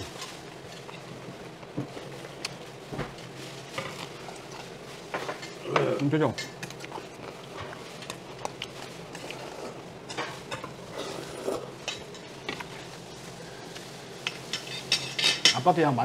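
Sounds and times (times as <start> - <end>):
chopsticks clinking on metal bowls: 14.2 - 15.7.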